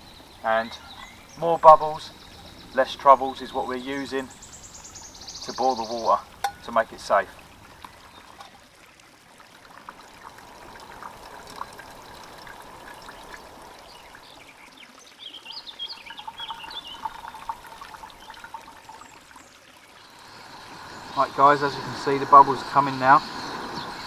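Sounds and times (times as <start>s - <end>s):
water trickling and dripping: 0.0s - 24.0s
high chirps: 15.9s - 18.4s.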